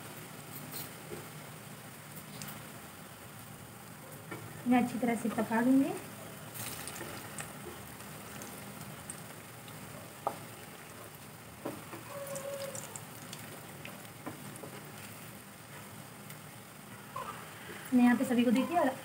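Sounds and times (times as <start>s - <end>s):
deep-frying sizzle in oil: 0.0s - 19.0s.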